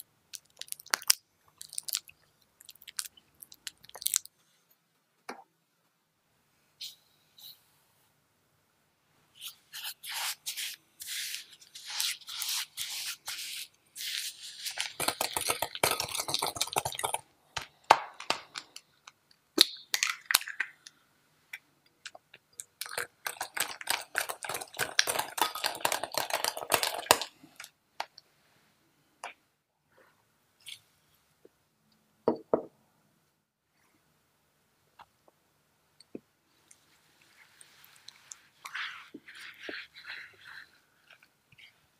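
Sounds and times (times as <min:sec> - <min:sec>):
sugar pouring into bowl: 0:12.5 - 0:17.2, 0:22.9 - 0:27.3
spoon scraping glass bowl: 0:14.0 - 0:17.2.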